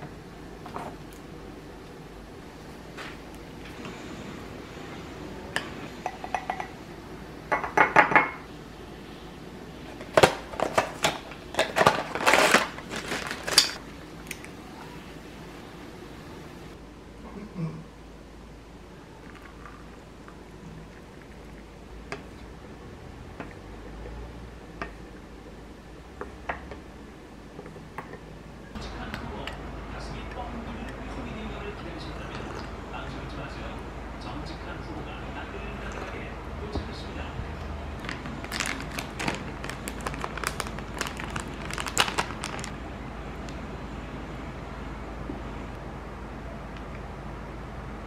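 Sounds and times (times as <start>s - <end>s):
plastic pouch crinkling: 10.6s - 13.8s, 38.0s - 42.8s.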